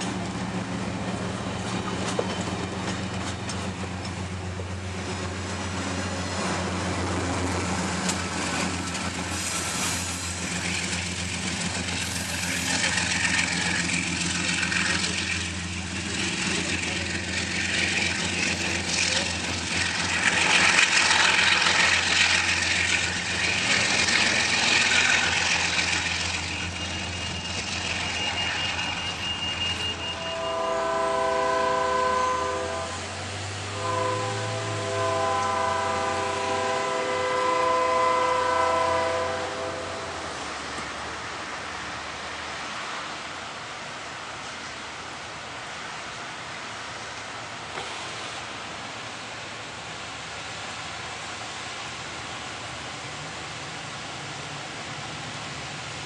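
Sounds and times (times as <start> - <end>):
diesel locomotive hum: 0.0 - 56.0
train wheels rumbling on track: 0.0 - 56.0
train horn blasts: 28.1 - 40.2.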